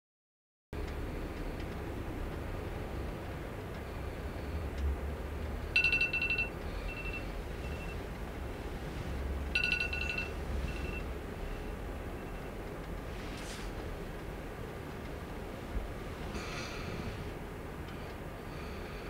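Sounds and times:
alarm beeping: 5.8 - 8.0, 9.5 - 12.6.

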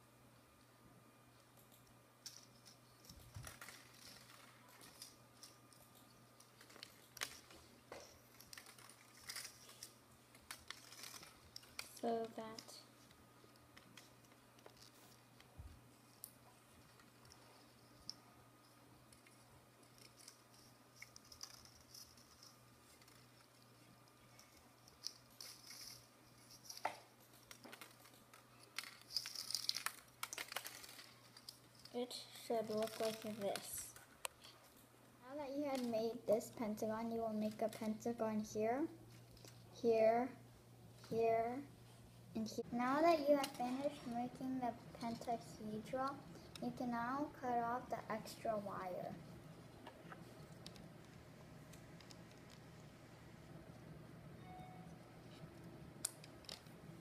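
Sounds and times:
plastic straws and beads rustling: 2.2 - 34.8.

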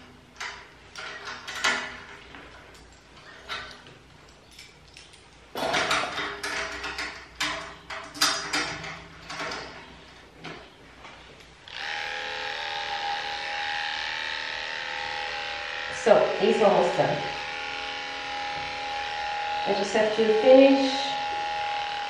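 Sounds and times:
electric clippers buzzing: 11.6 - 22.0.

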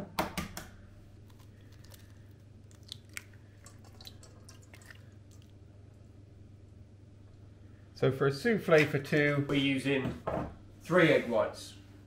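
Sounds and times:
egg cracking on steel bowl: 0.4 - 5.5
egg dripping into bowl: 1.3 - 5.6.

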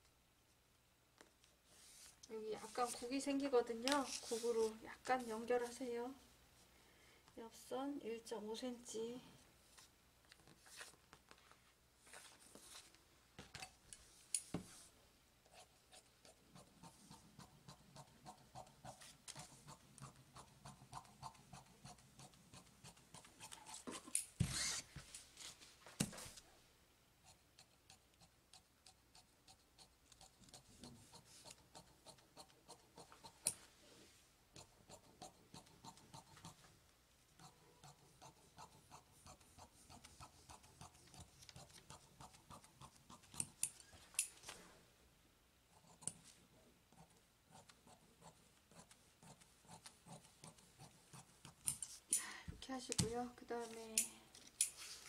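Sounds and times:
rustling: 54.4 - 55.0.

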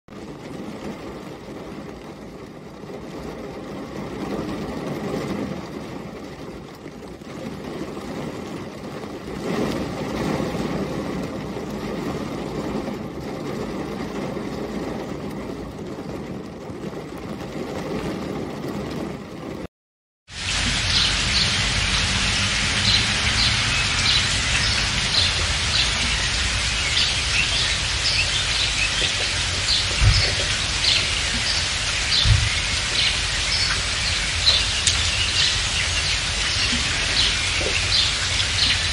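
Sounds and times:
rain pattering on windscreen: 0.1 - 19.7, 20.3 - 38.9
heavy rain hissing: 20.3 - 38.9
birds chirping: 20.4 - 38.9.

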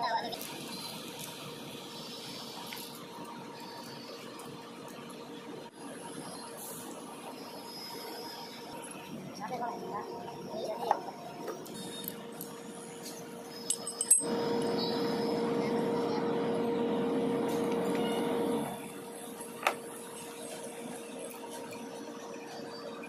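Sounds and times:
hand tools clinking on metal: 13.7 - 14.3.

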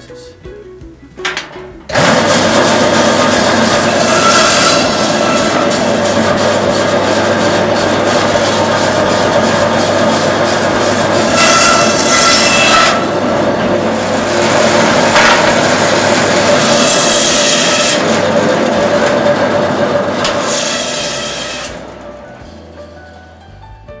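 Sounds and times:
meat bandsaw cutting bone: 1.9 - 22.0.

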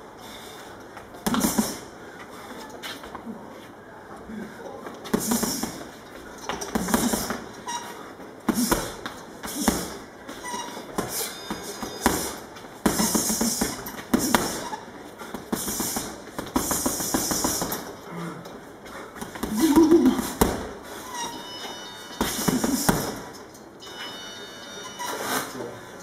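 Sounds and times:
punches thudding on heavy bag: 1.2 - 1.8, 5.1 - 5.9, 6.6 - 7.5, 8.5 - 10.1, 10.9 - 17.9, 19.2 - 20.8, 22.2 - 23.3
short hissing bursts: 15.5 - 17.8.

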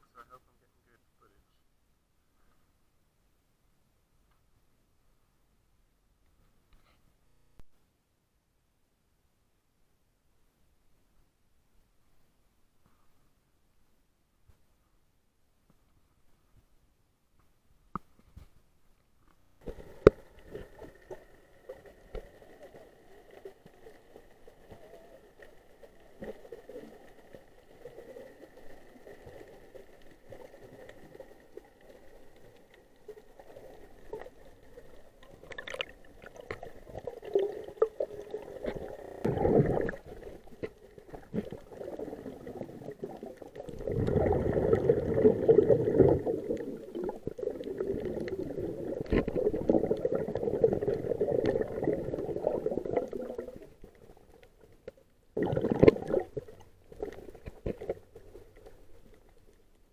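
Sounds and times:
water gurgling underwater: 19.6 - 54.4, 55.4 - 58.8.

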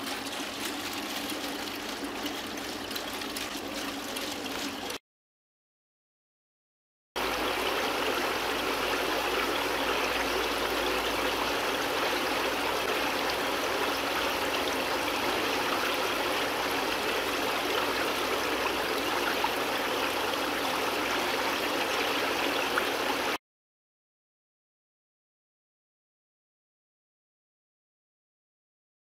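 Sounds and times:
rushing bubbling water: 0.0 - 5.0, 7.2 - 23.4.

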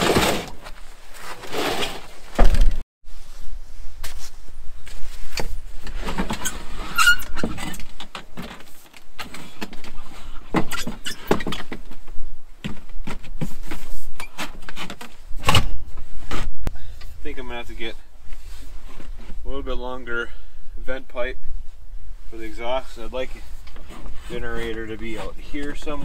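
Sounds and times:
short squeak: 6.4 - 7.7.

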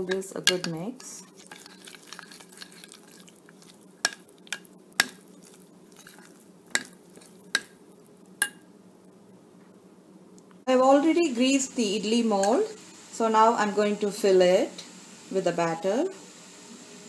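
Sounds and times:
spoon scraping wet batter: 0.0 - 8.1
spoon clinking on bowl: 6.8 - 7.7.

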